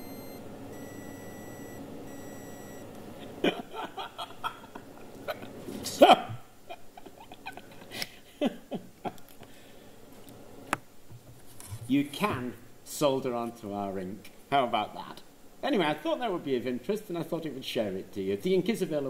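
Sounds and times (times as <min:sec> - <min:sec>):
high-pitched electronic beeps: 0:00.0 - 0:02.8
man laughing: 0:03.2 - 0:09.3.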